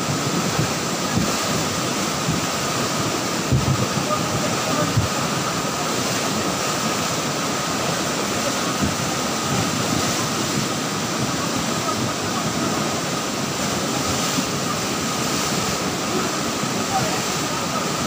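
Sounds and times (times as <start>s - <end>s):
floodwater rushing: 0.0s - 18.0s.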